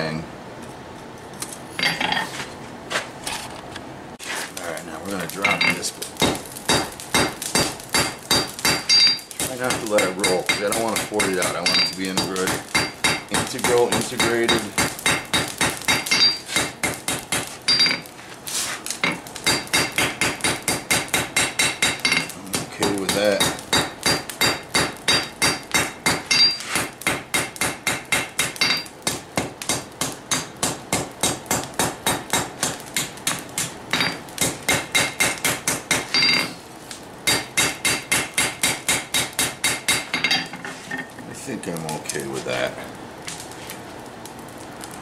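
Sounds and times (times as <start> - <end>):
hammer striking steel on anvil: 5.4 - 18.1, 19.0 - 36.5, 37.3 - 40.6.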